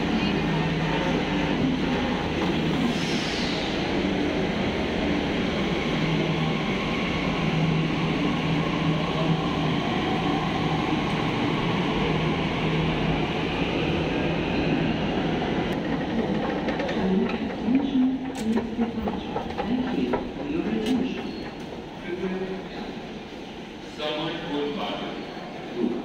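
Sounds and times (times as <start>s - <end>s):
metro train rumble and hum: 0.0s - 26.0s.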